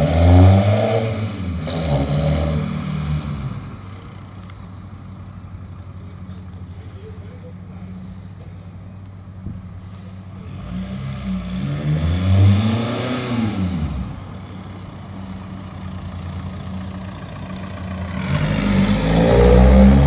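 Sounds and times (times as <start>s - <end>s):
diesel van engine revving: 0.0s - 20.0s.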